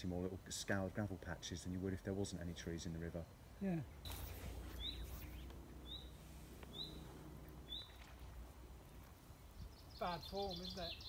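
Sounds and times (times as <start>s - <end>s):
songbird chirping: 0.0s - 11.0s
low steady rumble: 4.0s - 10.2s.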